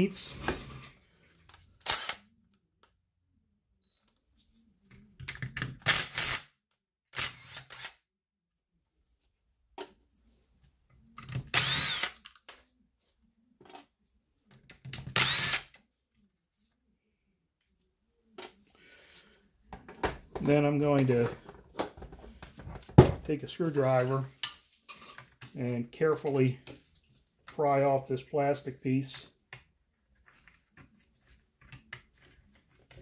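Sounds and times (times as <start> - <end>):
cordless driver spinning: 1.8 - 2.2, 11.5 - 12.2, 15.1 - 15.7.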